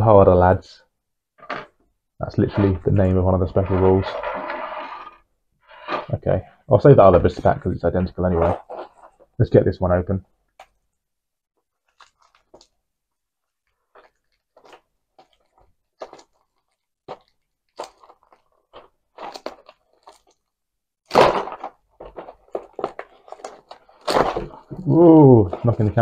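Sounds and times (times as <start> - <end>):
packaging crackling and crinkling: 11.7 - 12.8, 13.4 - 20.5, 21.1 - 24.8.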